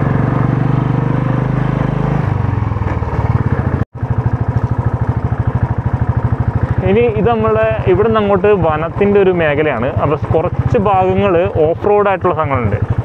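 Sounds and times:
vehicle engine running: 0.0s - 13.0s.

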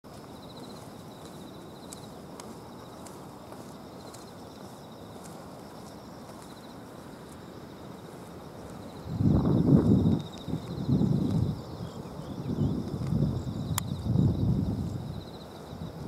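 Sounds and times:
insects trilling: 0.1s - 16.0s
faint clicks: 12.9s - 14.0s.

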